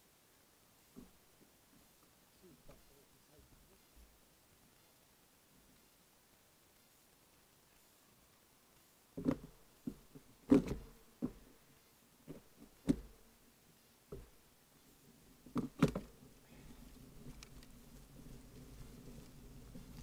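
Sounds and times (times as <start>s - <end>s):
bicycle knocking and rattling: 14.1s - 14.4s.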